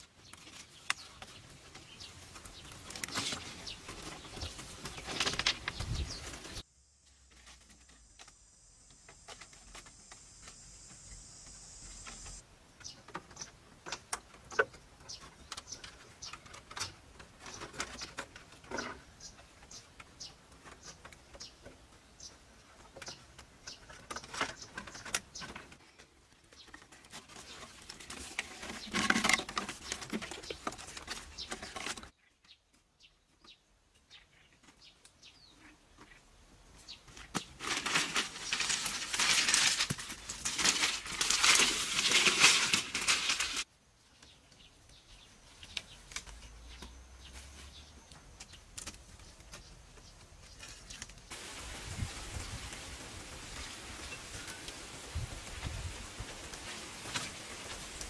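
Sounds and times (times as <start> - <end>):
bamboo poles tapping and clattering: 0.0 - 6.6, 12.0 - 51.5, 52.4 - 58.0
high-pitched buzz: 8.4 - 12.4.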